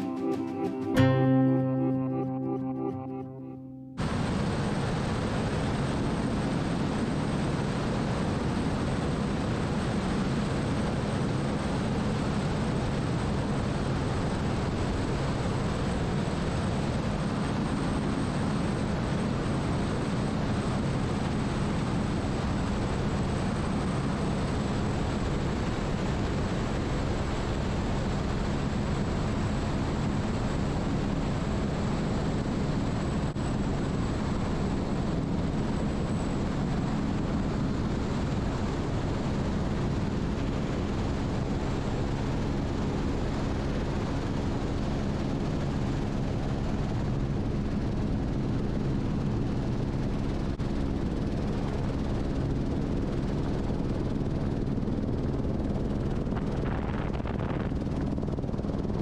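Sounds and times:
thin high whine: 0:00.0 - 0:04.8
helicopter rotor and turbine drone: 0:04.0 - 0:59.0.

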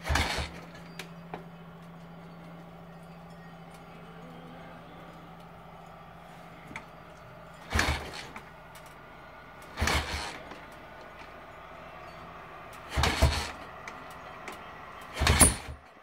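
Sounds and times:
motorcycle engine kick-starting: 0:00.0 - 0:03.9, 0:06.6 - 0:09.0, 0:09.6 - 0:15.9.

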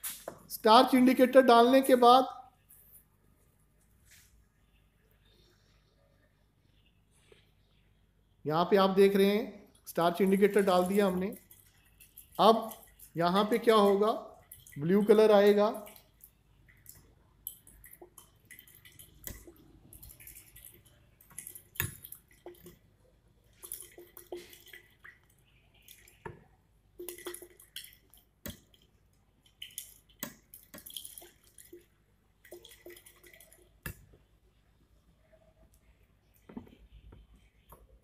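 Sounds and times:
liquid swishing in a glass flask: 0:10.2 - 0:34.5.

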